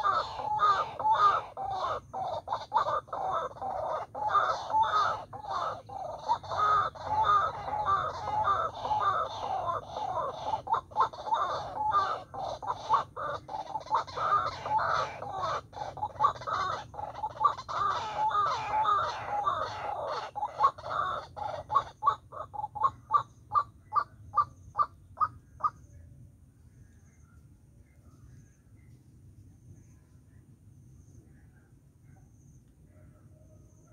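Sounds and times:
waterhen calling harsh croaks: 0.0 - 25.8.

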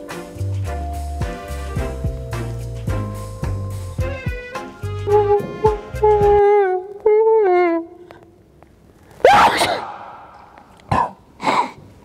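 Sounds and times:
person sneezing: 9.2 - 10.3, 10.9 - 11.8.

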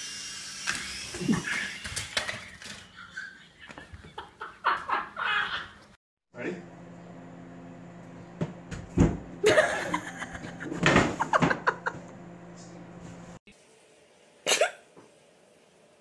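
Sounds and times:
steady low hum: 6.4 - 13.4.

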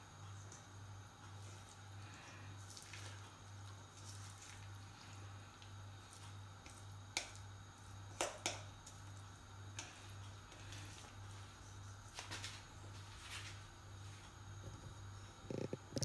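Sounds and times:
low steady hum: 0.0 - 16.0
oil popping in frying pan: 5.6 - 10.3.

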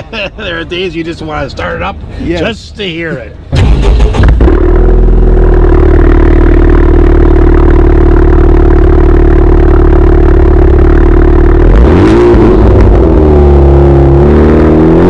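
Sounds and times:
car engine idling and revving: 3.2 - 15.0.

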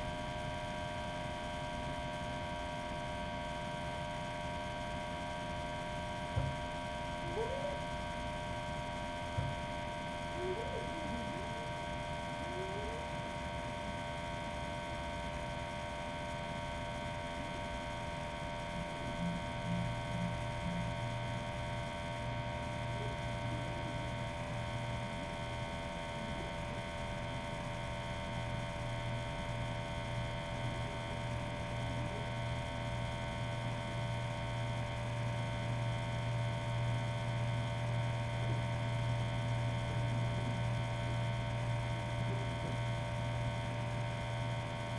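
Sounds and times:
electrical hum with whining tones: 0.0 - 44.9.

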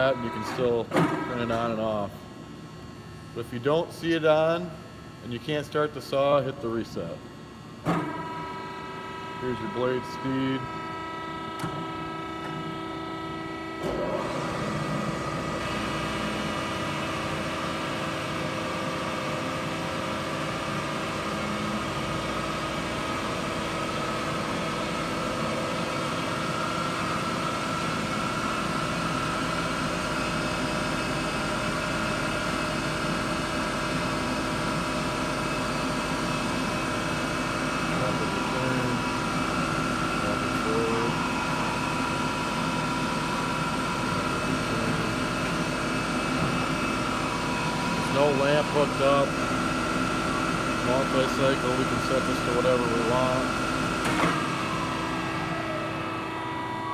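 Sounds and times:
band saw whine: 0.0 - 1.6, 8.2 - 56.9
steady hum: 0.0 - 56.9.

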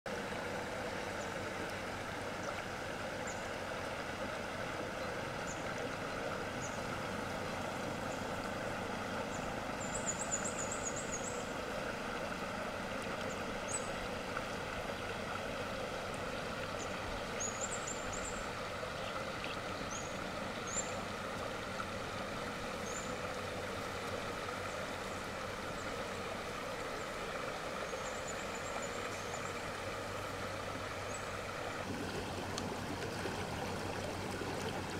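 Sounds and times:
shallow river flowing: 0.1 - 34.9.

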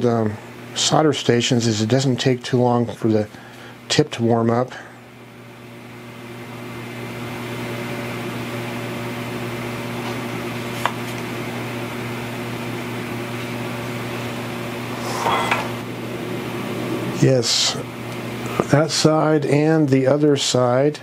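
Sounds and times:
electrical hum: 0.0 - 21.0
whirring noise: 14.1 - 19.7.

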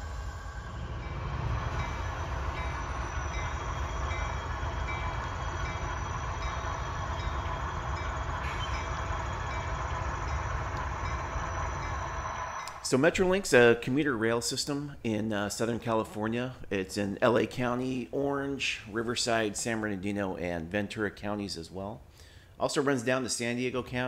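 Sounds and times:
model train diesel rumble: 0.0 - 13.8.

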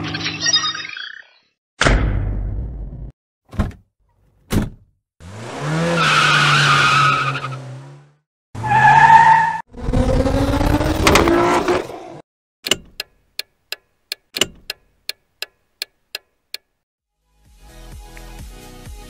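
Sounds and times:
engine revving: 5.2 - 12.2.

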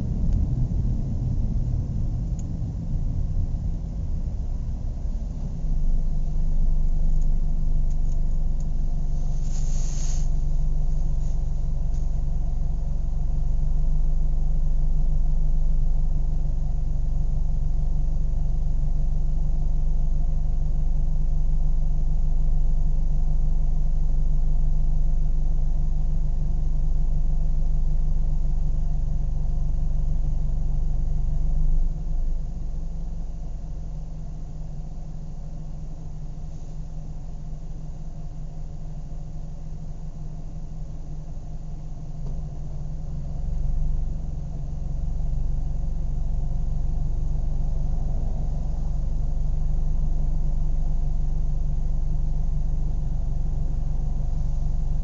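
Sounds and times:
car engine idling: 0.0 - 55.0.

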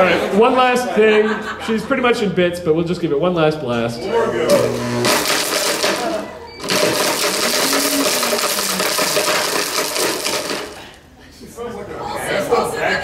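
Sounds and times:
blender grinding plastic: 4.4 - 11.0.

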